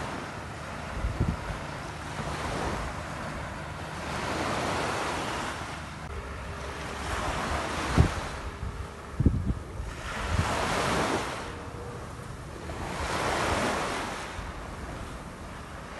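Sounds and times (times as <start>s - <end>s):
wind buffeting microphone: 0.0s - 3.7s, 7.1s - 15.9s
faint steady hum: 0.0s - 15.9s
ocean surf washing onto beach: 0.0s - 15.9s.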